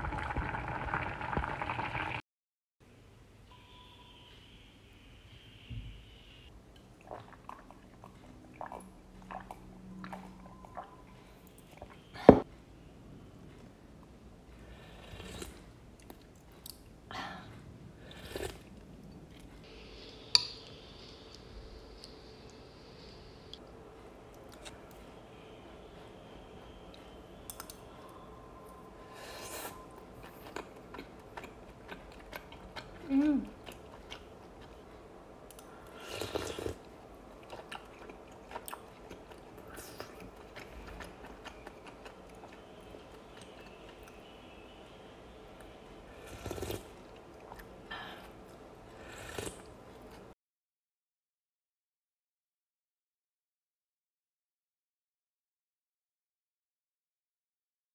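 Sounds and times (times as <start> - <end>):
slurping soup off spoon: 18.1 - 18.7, 35.9 - 36.8, 46.1 - 47.6, 48.9 - 49.7
person chewing food: 29.5 - 44.3, 46.2 - 50.3.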